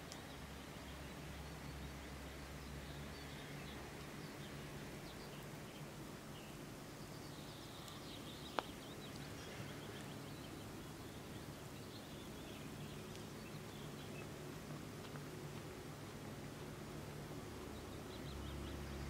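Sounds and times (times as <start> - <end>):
faint bird chirps: 0.0 - 14.3.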